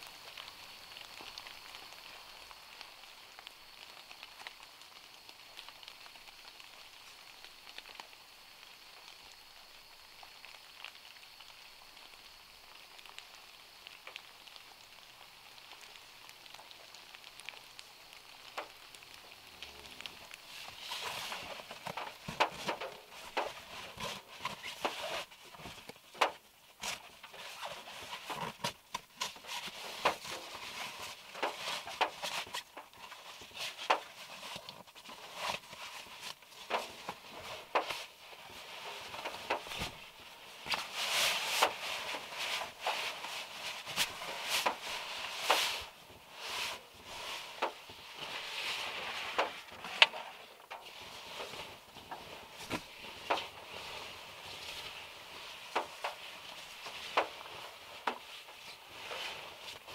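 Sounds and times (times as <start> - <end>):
rain tapping on car roof: 0.0 - 59.9
nylon fabric rustling: 19.7 - 59.9.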